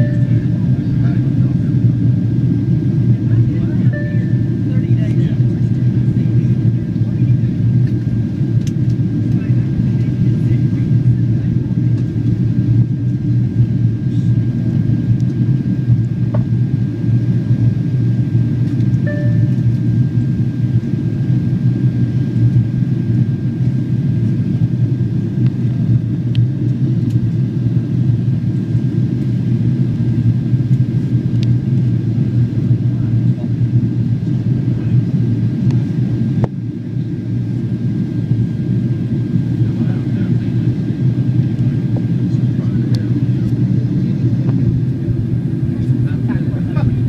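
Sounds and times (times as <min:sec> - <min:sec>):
faint high whine: 0:00.0 - 0:00.9, 0:03.8 - 0:04.8, 0:19.0 - 0:19.8
airplane cabin engine roar: 0:00.0 - 0:47.0.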